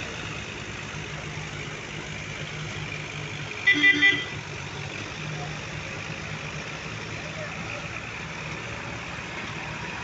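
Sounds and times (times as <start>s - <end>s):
diesel tractor engine running: 0.0s - 10.0s
loud high-pitched horn blast: 3.6s - 4.3s.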